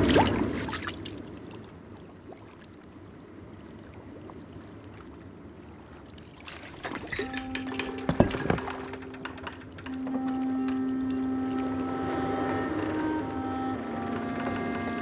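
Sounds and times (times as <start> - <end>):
calm water lapping: 0.0 - 15.0
low steady tone: 6.9 - 15.0.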